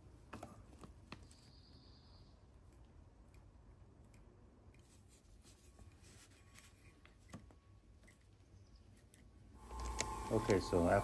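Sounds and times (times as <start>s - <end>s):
small clicks: 8.9s - 10.7s.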